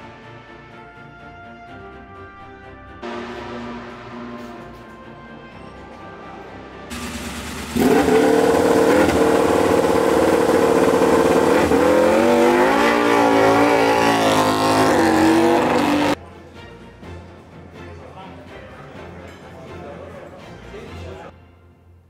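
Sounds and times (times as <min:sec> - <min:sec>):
racing motorcycle engine revving: 0:06.9 - 0:16.2.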